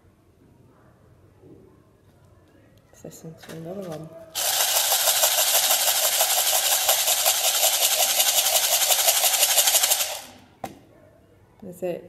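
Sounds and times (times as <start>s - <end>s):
plastic shaker rattling: 3.4s - 10.5s.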